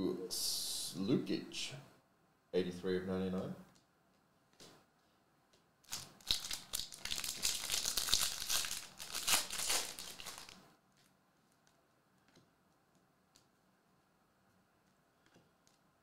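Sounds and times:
foil wrapper crinkling: 5.9 - 10.6.

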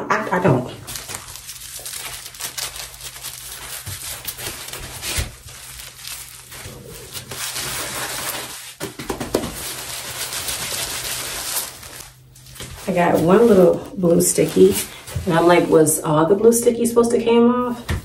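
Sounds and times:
fabric rustling and crinkling: 0.8 - 16.1.

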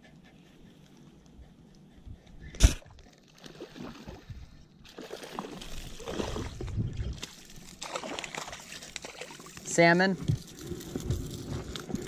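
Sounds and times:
fish splashing in water: 2.6 - 12.0.

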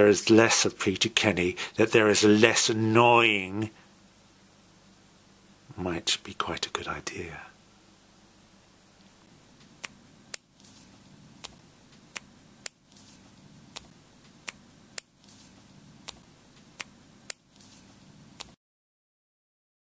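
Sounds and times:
faint low hum: 0.0 - 18.6
sharp metallic clicks with ring: 9.8 - 10.5, 11.4 - 12.8, 13.8 - 15.2, 16.8 - 17.5.

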